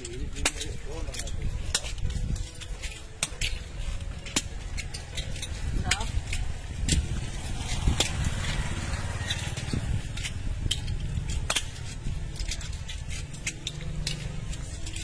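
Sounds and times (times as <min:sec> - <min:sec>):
shells clicking and clattering: 0:00.0 - 0:15.0.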